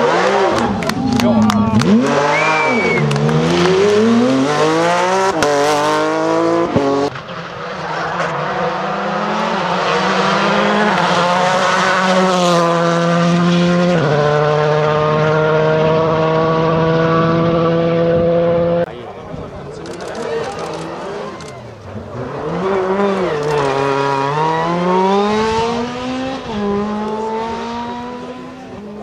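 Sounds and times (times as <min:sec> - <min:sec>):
rally car accelerating with gear shifts: 0:00.0 - 0:18.9, 0:20.3 - 0:29.0
rally car engine revving: 0:00.0 - 0:18.9, 0:19.8 - 0:29.0
tyre squeal: 0:02.2 - 0:03.1.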